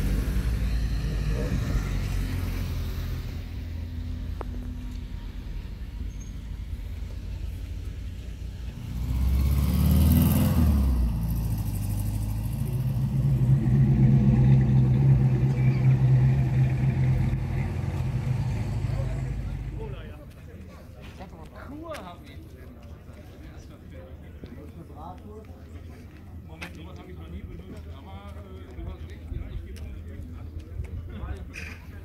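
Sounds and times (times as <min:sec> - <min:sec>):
cars driving past: 0:00.0 - 0:20.4
car engine running: 0:10.8 - 0:20.0.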